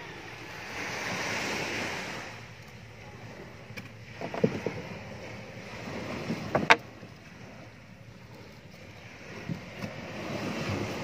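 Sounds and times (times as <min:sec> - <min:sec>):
sea and wind noise: 0:00.0 - 0:11.0.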